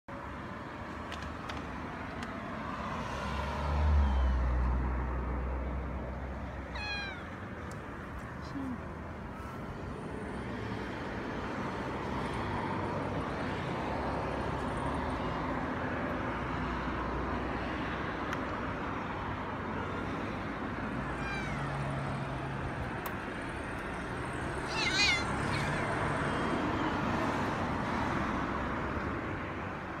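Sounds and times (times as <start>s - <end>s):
urban traffic noise: 0.1s - 30.0s
cats meowing: 6.7s - 7.4s, 21.0s - 21.8s, 24.6s - 26.1s.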